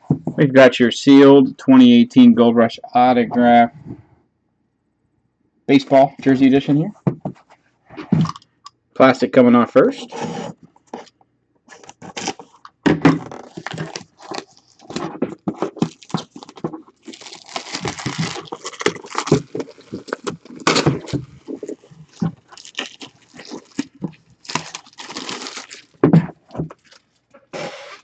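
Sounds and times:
plastic shrink wrap tearing: 11.7s - 12.6s, 13.2s - 28.0s.

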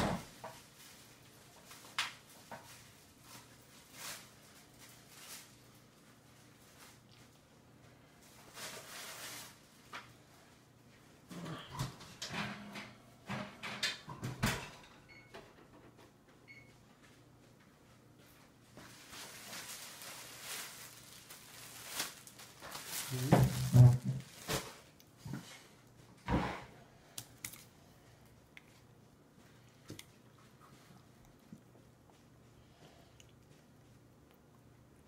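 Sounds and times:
soft rustling: 17.0s - 25.7s.

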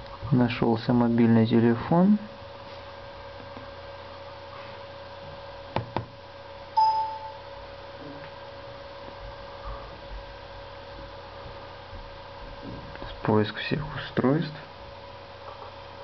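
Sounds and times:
faint electronic hum: 0.0s - 16.0s
short electronic chime: 6.8s - 7.5s.

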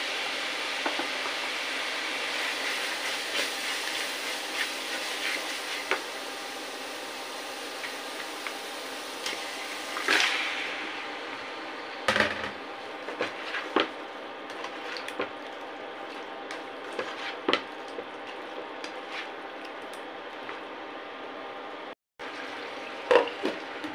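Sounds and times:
food sizzling in hot oil: 0.0s - 12.0s
frying hiss: 0.0s - 19.8s
spatula stirring clicks: 14.5s - 20.6s.

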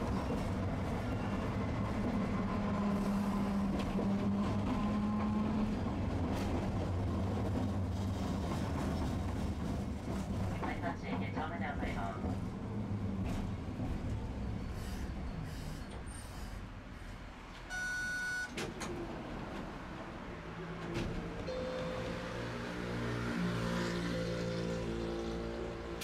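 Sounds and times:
streetcar wheels rumbling on track: 0.0s - 17.7s, 18.5s - 26.0s
short electronic beep: 17.7s - 18.5s.

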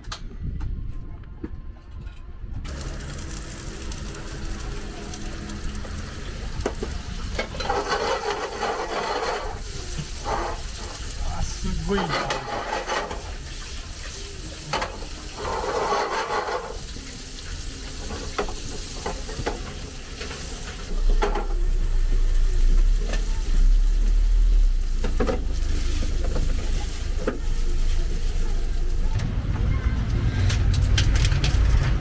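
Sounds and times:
food sizzling in frying pan: 2.7s - 29.1s
pan scraping rattles and clicks: 6.8s - 9.6s.

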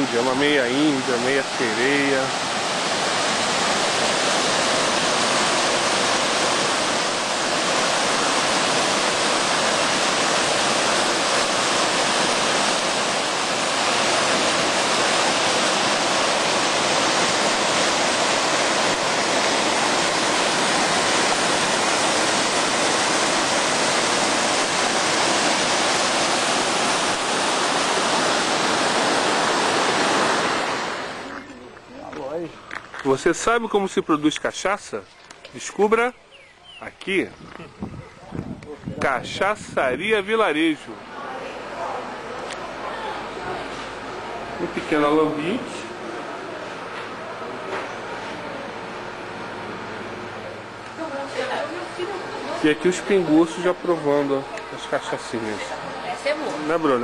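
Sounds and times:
river rushing over rocks: 0.0s - 31.4s.

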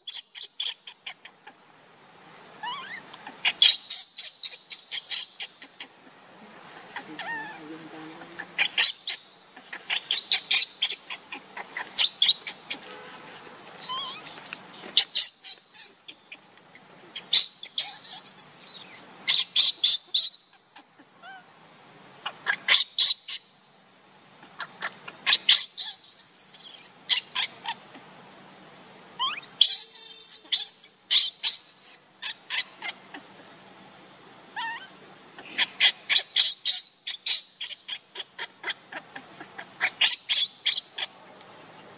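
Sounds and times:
baby monkey crying squeals: 2.6s - 5.8s, 7.0s - 7.6s, 8.4s - 12.8s, 13.8s - 14.4s, 17.2s - 20.4s, 21.2s - 21.4s, 24.6s - 27.8s, 29.2s - 33.2s, 34.6s - 34.9s, 35.6s - 41.1s.

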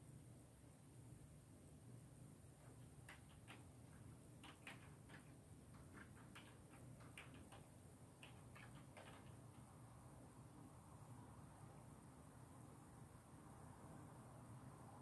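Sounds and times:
faint keyboard keystrokes: 2.6s - 9.7s.

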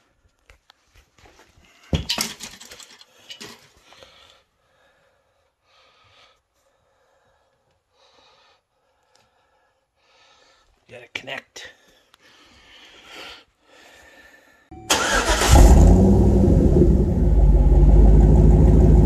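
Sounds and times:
soft breaths: 2.9s - 10.9s, 11.6s - 14.7s.

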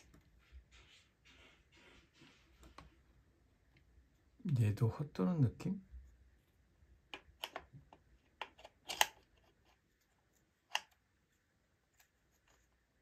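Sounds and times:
plastic parts clicking and knocking: 7.1s - 9.8s.

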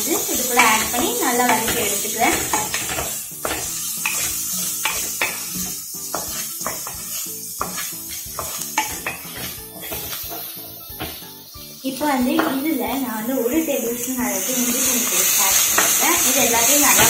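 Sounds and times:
onions sizzling in hot oil: 0.0s - 17.0s
wooden spatula scraping a pan: 0.1s - 12.6s.

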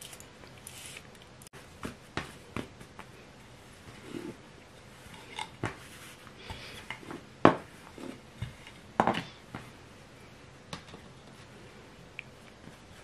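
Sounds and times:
rolling pin on dough on wooden board: 5.1s - 9.7s.

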